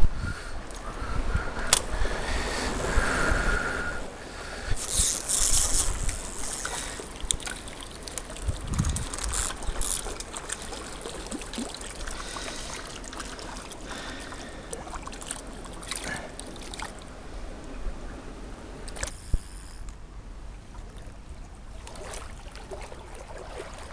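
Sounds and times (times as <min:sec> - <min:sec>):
shallow stream trickling: 0:00.5 - 0:23.9
fishing reel clicks and knocks: 0:04.7 - 0:11.0, 0:18.9 - 0:20.0.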